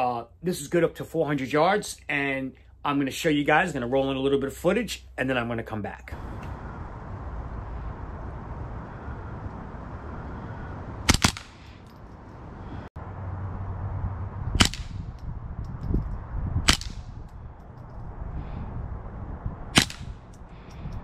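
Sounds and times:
rifle shots: 0:11.0 - 0:11.8, 0:14.6 - 0:15.1, 0:16.7 - 0:17.1, 0:19.8 - 0:20.2.

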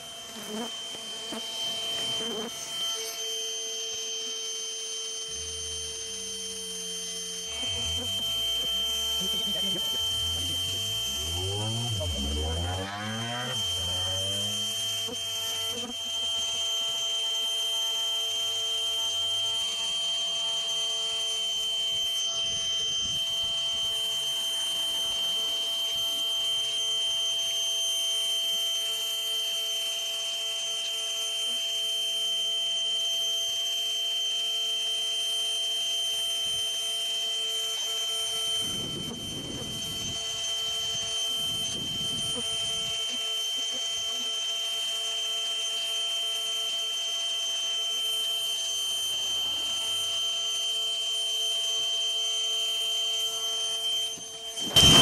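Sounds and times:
vacuum motor whine: 0:00.0 - 0:55.0.

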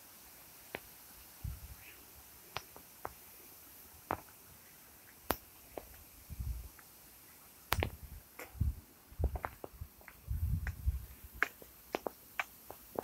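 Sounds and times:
faint background hiss: 0:00.0 - 0:13.0
footsteps on paving stones: 0:09.2 - 0:13.0.

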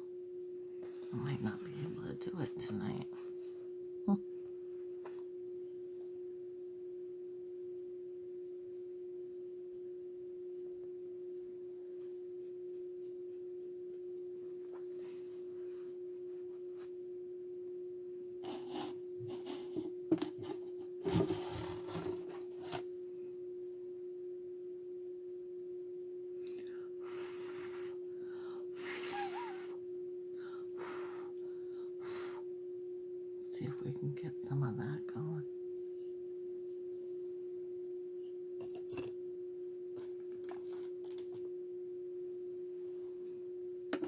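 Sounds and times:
steady hum: 0:00.0 - 0:44.0
painting supplies knocking and rustling: 0:19.6 - 0:22.9.

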